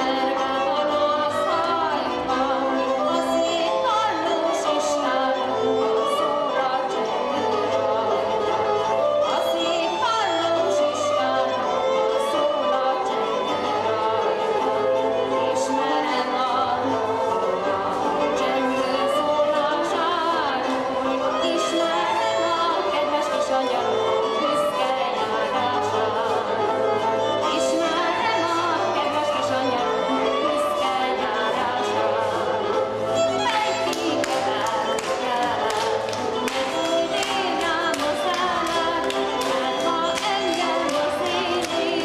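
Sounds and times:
folk music with fiddle: 0:00.0 - 0:42.0
person singing: 0:00.0 - 0:42.0.

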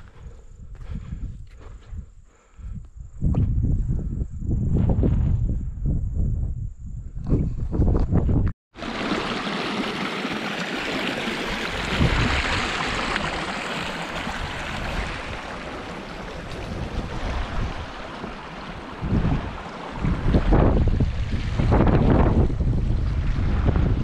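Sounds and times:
water rushing: 0:08.7 - 0:24.0.

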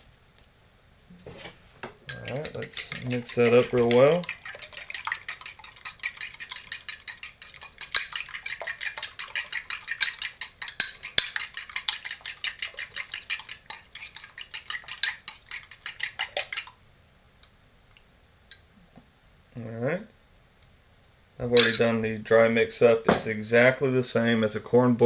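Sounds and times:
fork whisking in ceramic bowl: 0:02.1 - 0:16.8.

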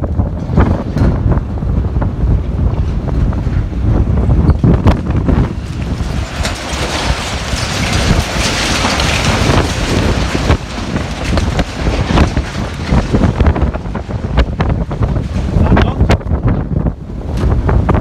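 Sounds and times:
wind buffeting microphone: 0:00.0 - 0:18.0
marquee fabric and frame rattling: 0:00.3 - 0:18.0.

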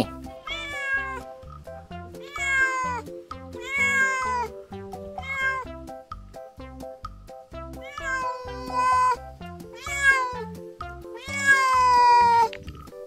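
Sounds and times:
background music: 0:00.0 - 0:13.0
cat meowing in fear: 0:00.4 - 0:01.3, 0:02.2 - 0:04.6, 0:05.2 - 0:05.7, 0:07.8 - 0:12.5.

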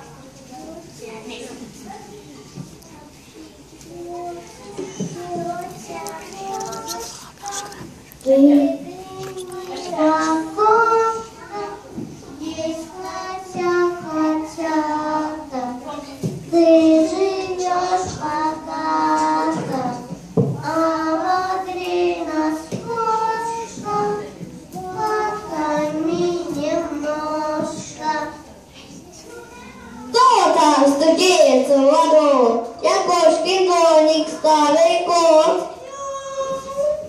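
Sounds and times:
child singing: 0:03.8 - 0:28.5.

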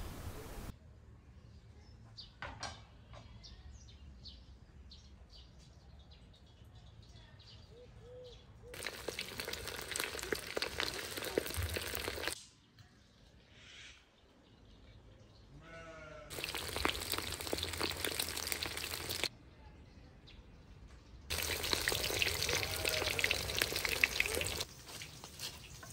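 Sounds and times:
kebabs sizzling in hot oil: 0:08.8 - 0:12.4, 0:16.3 - 0:19.3, 0:21.3 - 0:25.9.

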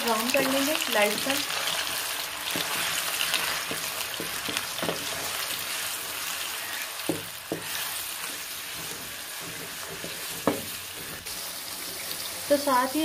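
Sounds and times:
onion paste sizzling in oil: 0:00.0 - 0:13.0
spatula knocking against pan: 0:08.8 - 0:11.2.

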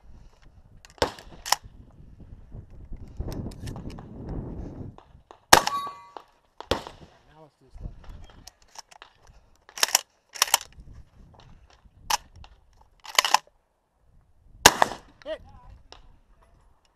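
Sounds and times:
shotgun shots: 0:01.0 - 0:01.6, 0:05.5 - 0:07.1, 0:14.6 - 0:15.1.

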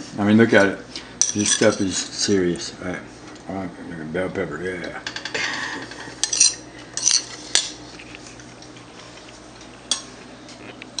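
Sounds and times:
cutlery clinking on plates: 0:05.1 - 0:07.8.

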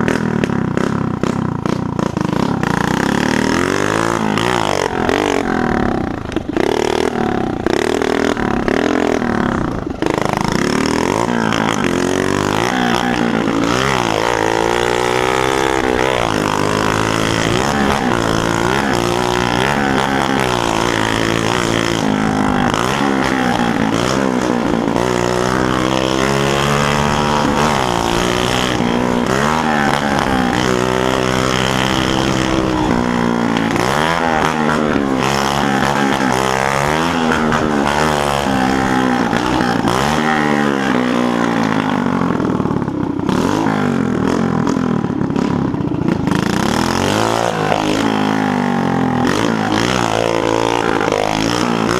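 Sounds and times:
moped engine revving: 0:00.0 - 0:51.9.

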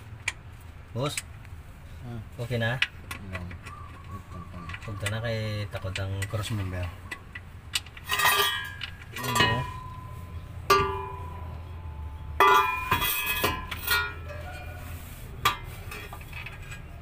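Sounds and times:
metal tools clinking: 0:05.8 - 0:14.8.

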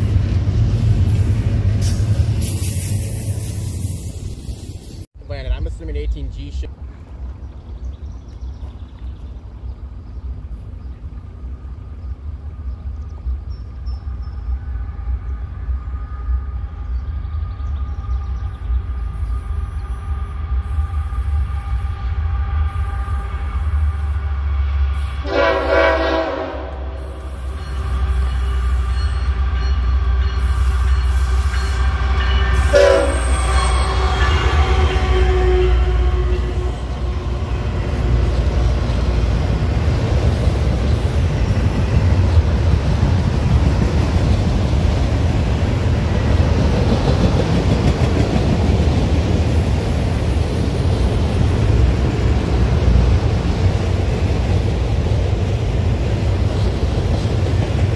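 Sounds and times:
locomotive horn blasts: 0:20.0 - 0:38.5.

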